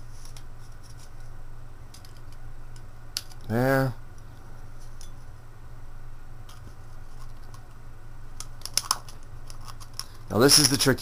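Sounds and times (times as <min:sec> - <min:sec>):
light clicks of aluminum pieces: 0:08.4 - 0:10.9.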